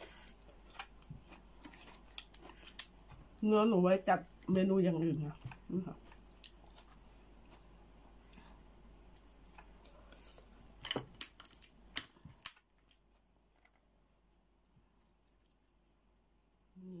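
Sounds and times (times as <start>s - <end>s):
crab shell crackling and snapping: 0.5s - 3.3s, 10.8s - 13.8s.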